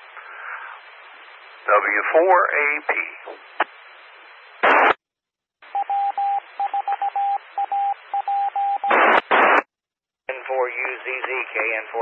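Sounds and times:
radio carrier hiss: 0.0s - 5.0s, 8.9s - 9.7s, 10.3s - 12.0s
squelch static bursts: 0.0s - 5.0s, 5.7s - 9.7s, 10.3s - 12.0s
morse code beeps: 5.7s - 9.0s.

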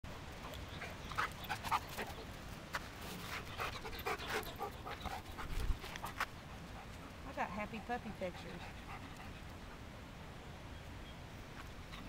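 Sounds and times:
dog panting: 3.2s - 9.7s.

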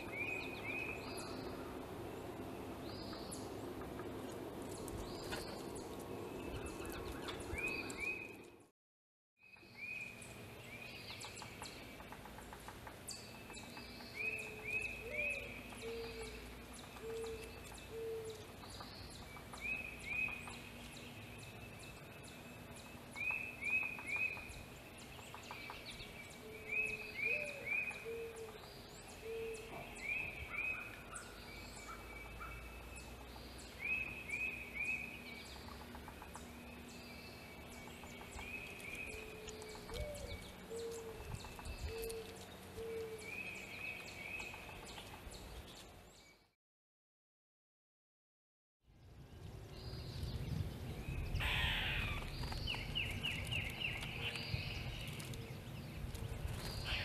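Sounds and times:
low rising bird call series: 51.1s - 55.5s.

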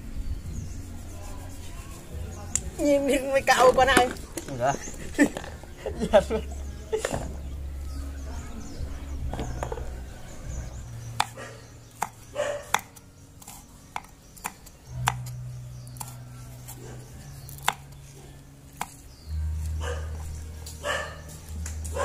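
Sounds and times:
knife chopping on wooden board: 11.2s - 11.4s, 12.0s - 15.4s, 16.0s - 16.2s, 17.6s - 17.8s, 18.8s - 19.0s.

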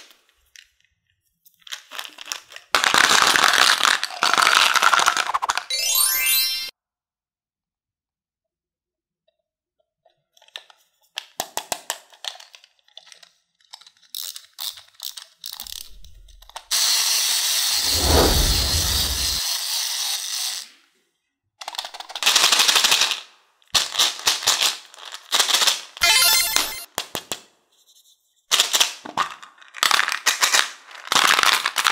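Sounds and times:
candies rattling in plastic case: 1.5s - 5.7s, 23.8s - 25.8s, 28.5s - 31.9s
candies pouring onto plastic: 1.7s - 5.6s, 29.7s - 31.9s.

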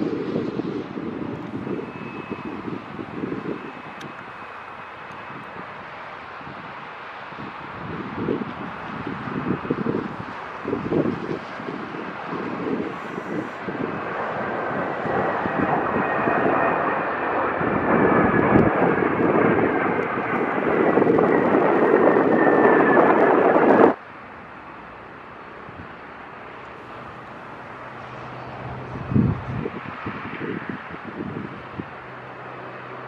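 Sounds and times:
jet engines roaring overhead: 0.0s - 33.0s
steady low rumble: 8.1s - 24.0s.

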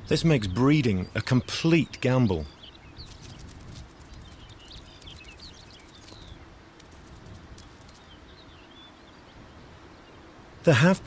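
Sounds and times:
high chirping calls: 0.0s - 10.3s
low wind rumble: 0.0s - 10.7s
rustling in dry grass: 2.5s - 8.9s.

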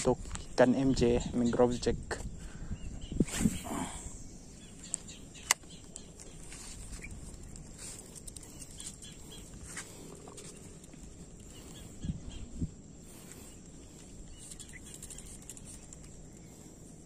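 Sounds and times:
faint bird calls: 2.4s - 17.0s
sharp click: 4.9s - 6.3s.

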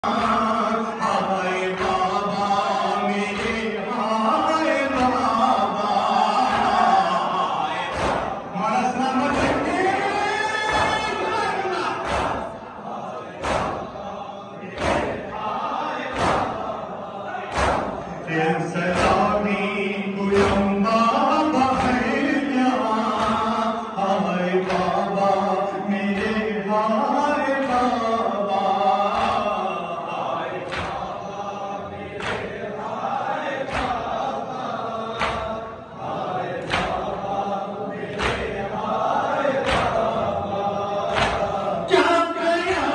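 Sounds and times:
men chanting a mourning lament: 0.0s - 42.9s
hands beating chests: 11.9s - 12.6s, 16.1s - 16.6s, 17.5s - 18.1s.

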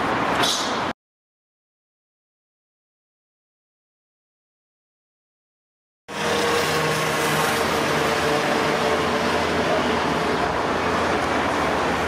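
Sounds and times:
road traffic hum: 0.0s - 1.0s, 6.1s - 12.0s.

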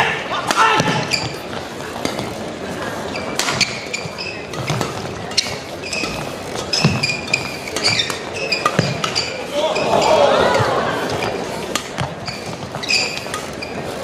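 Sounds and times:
crowd noise in hall: 0.0s - 14.0s
shoes squeaking on court: 0.0s - 14.0s
shuttlecock struck by rackets: 10.6s - 13.6s.

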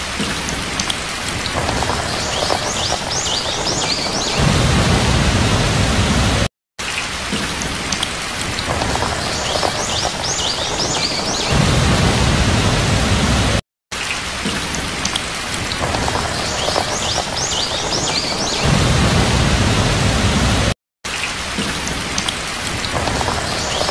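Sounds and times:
heavy rain falling: 0.0s - 6.5s, 7.1s - 13.6s, 14.2s - 20.8s, 21.4s - 23.9s
low rumble: 4.2s - 6.5s, 11.5s - 13.6s.

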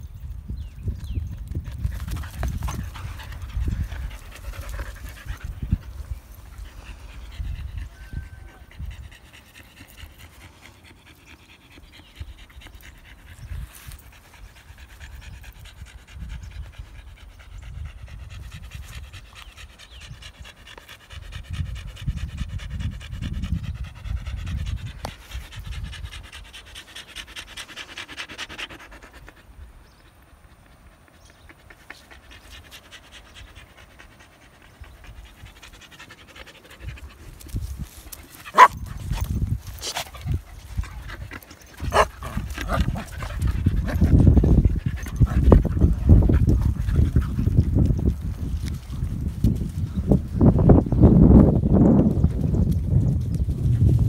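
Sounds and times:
dog panting: 1.5s - 49.3s.

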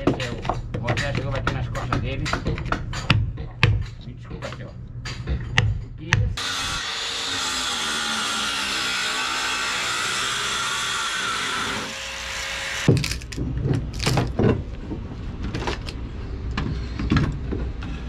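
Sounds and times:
angle grinder: 6.4s - 13.4s
wood cracking: 12.9s - 14.6s.

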